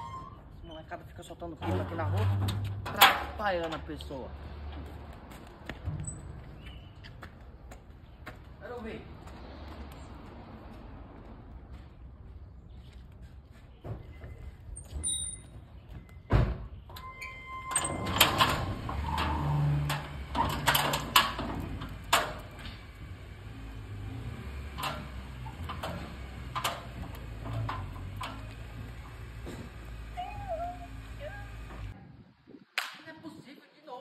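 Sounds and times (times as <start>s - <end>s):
sheet-metal gate rattling and banging: 1.5s - 4.0s, 17.0s - 30.0s
chain clanking against gate: 1.6s - 3.9s, 17.0s - 22.6s.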